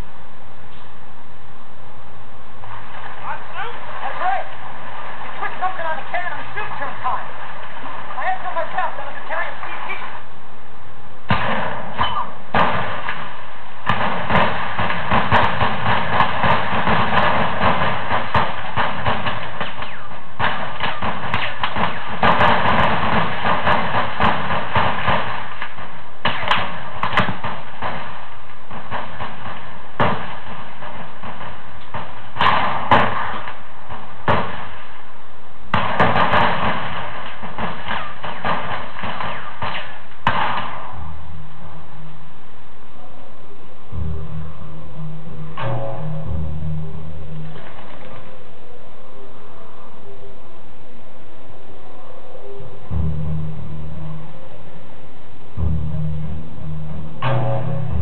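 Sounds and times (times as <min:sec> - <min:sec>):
dense noisy rumble: 0:00.0 - 0:58.0
sharp bangs and knocks: 0:11.3 - 0:35.1, 0:35.7 - 0:41.2, 0:43.9 - 0:48.4, 0:52.9 - 0:58.0.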